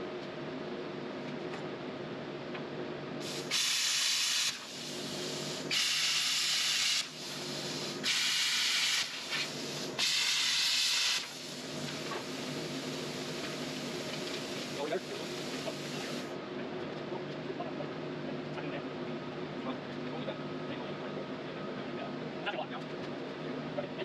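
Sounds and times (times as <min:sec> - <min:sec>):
steady low hum: 0:00.0 - 0:24.0
plasma cutter hissing: 0:03.2 - 0:16.4.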